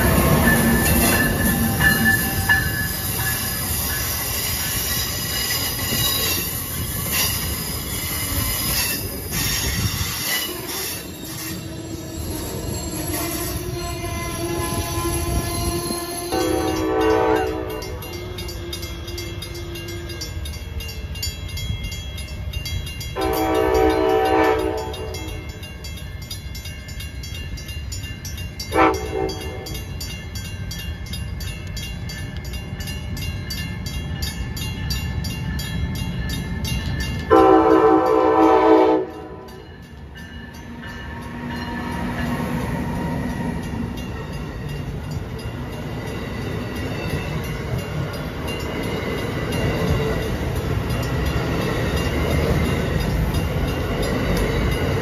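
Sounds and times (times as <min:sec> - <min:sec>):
train wheels rumbling on rails: 0:00.0 - 0:55.0
train horn blasts: 0:13.0 - 0:20.3, 0:23.2 - 0:25.4, 0:28.7 - 0:29.8, 0:37.3 - 0:39.6.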